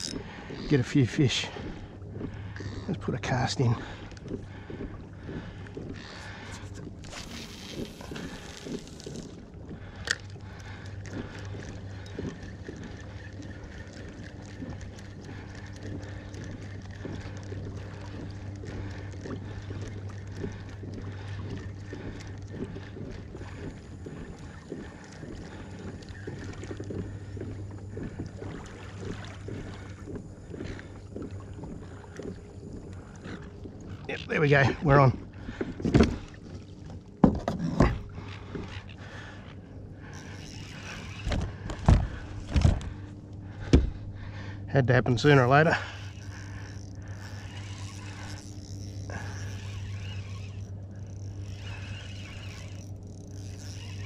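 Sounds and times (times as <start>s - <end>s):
steady low hum: 0.0s - 54.0s
water lapping against kayak hull: 0.0s - 54.0s
small irregular ticks: 5.6s - 34.9s, 38.2s - 41.8s, 45.2s - 54.0s.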